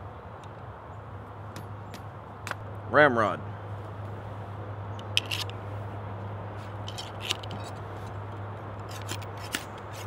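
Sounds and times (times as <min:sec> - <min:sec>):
ramrod scraping in gun barrel: 0:05.0 - 0:05.6, 0:06.6 - 0:08.2, 0:08.8 - 0:10.0.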